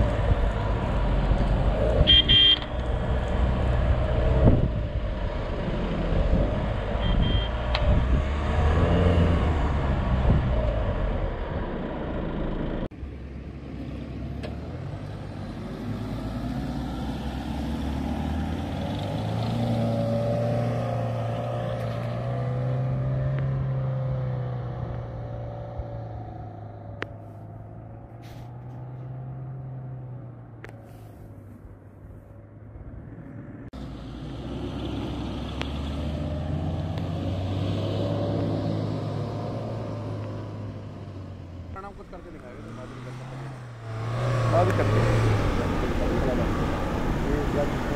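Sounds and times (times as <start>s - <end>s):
distant engine revving: 0.0s - 12.4s, 33.8s - 47.9s
vehicle engine: 0.0s - 47.9s
wind noise: 3.7s - 10.7s.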